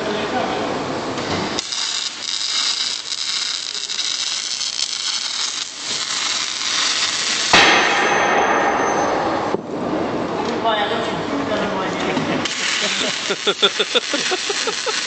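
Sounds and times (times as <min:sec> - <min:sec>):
welding arc crackling and hissing: 0:01.2 - 0:07.9, 0:12.4 - 0:15.0.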